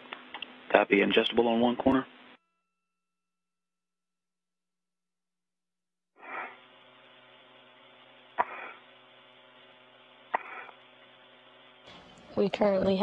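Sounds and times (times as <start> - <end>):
electrical hum and hiss: 0.0 - 2.4, 6.2 - 13.0
radio hissing rush: 6.2 - 7.5, 8.3 - 9.2, 10.2 - 11.5.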